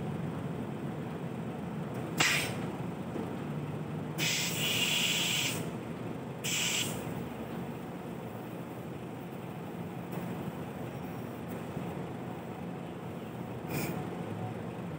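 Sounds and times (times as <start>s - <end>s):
compressed air hissing: 2.2s - 2.6s, 4.2s - 5.7s, 6.4s - 7.0s.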